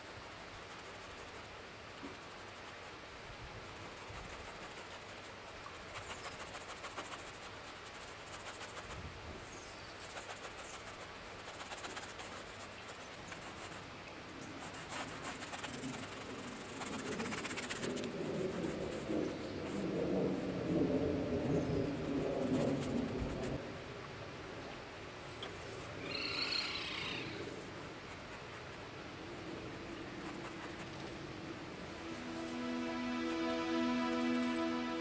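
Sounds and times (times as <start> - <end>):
brush scraping paint on canvas: 0.0 - 3.0, 3.6 - 20.1, 21.4 - 23.6, 27.4 - 31.4
steady outdoor hiss: 0.0 - 35.0.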